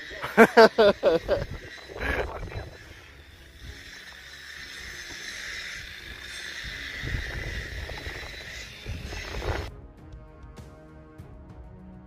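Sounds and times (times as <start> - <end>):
steady outdoor hiss: 0.0 - 9.7
wind rumbling on microphone: 1.1 - 3.8, 5.8 - 9.8.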